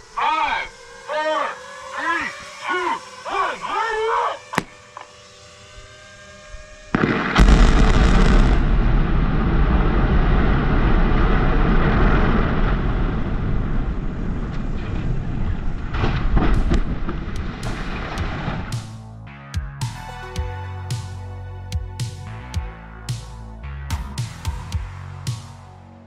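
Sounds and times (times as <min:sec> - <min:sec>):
explosive blast: 0:06.9 - 0:19.0.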